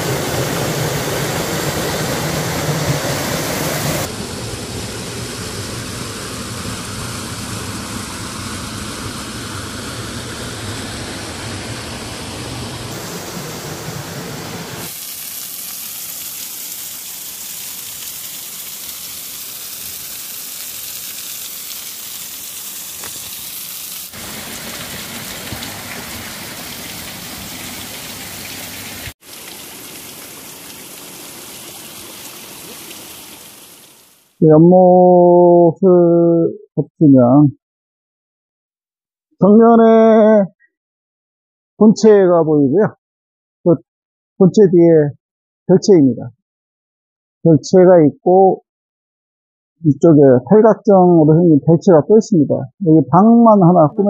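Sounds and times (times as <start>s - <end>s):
stream rushing over rocks: 0.0s - 4.2s, 12.9s - 34.3s.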